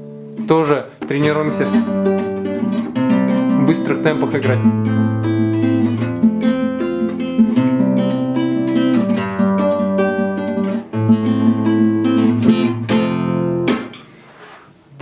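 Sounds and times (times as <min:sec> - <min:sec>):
classical guitar arpeggios: 0:00.0 - 0:14.2.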